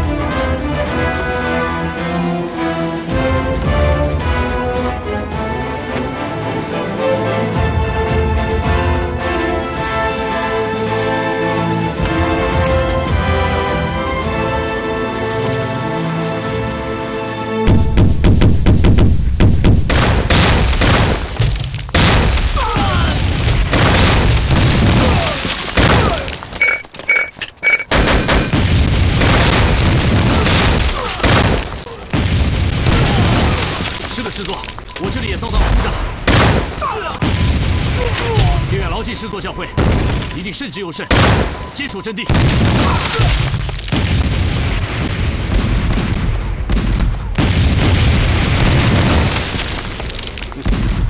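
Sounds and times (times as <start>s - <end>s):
artillery shell explosions: 17.6s - 26.6s, 27.9s - 40.5s, 41.1s - 51.0s.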